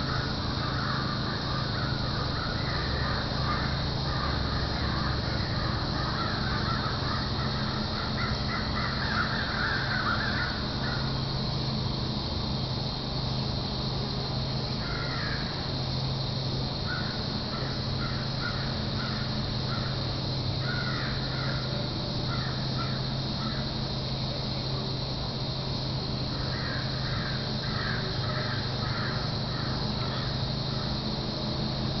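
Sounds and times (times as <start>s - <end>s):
crows cawing: 0.0s - 11.3s, 14.8s - 16.0s, 16.8s - 23.8s, 26.2s - 31.1s
steady low hum: 0.0s - 32.0s.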